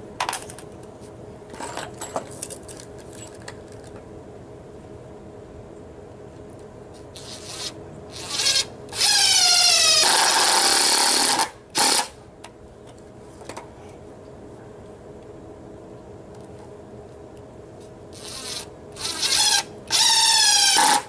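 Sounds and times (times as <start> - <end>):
cordless drill boring into wood: 7.2 - 12.1, 18.2 - 21.0.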